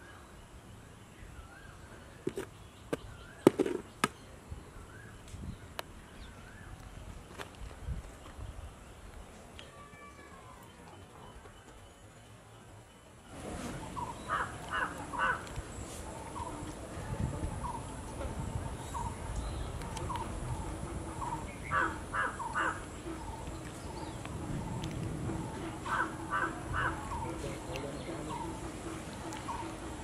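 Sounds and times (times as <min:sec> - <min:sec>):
crows cawing: 0:14.2 - 0:15.5, 0:21.6 - 0:22.9, 0:25.8 - 0:27.2.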